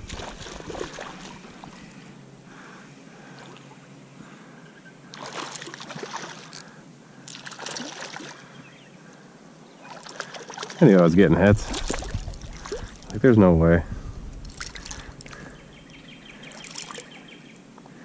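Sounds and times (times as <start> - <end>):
fish splashing at water surface: 0.0 - 1.7, 5.1 - 6.5, 7.3 - 8.4, 9.9 - 10.8, 11.6 - 13.0, 14.5 - 15.4, 16.6 - 17.1.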